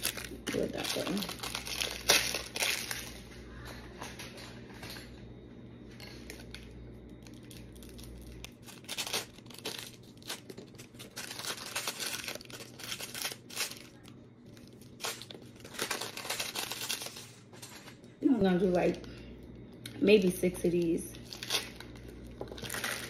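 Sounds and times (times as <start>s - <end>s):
plastic wrappers tearing and crinkling: 0.0s - 3.2s, 6.3s - 17.5s, 20.8s - 23.0s.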